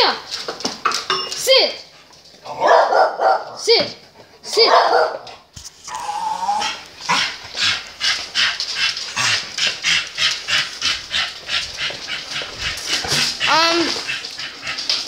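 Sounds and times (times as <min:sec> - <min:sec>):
dog panting: 0:04.0 - 0:05.5, 0:07.0 - 0:15.0.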